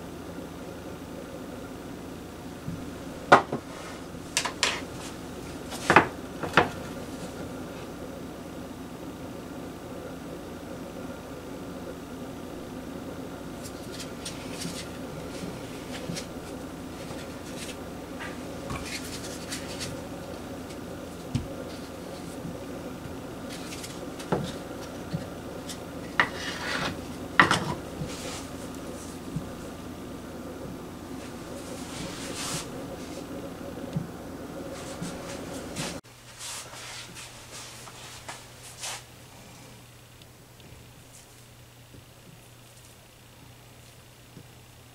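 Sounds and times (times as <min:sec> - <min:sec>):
steady low hum: 0:00.0 - 0:44.9
hands rubbing dough: 0:13.5 - 0:29.8, 0:31.1 - 0:33.6, 0:34.6 - 0:39.1.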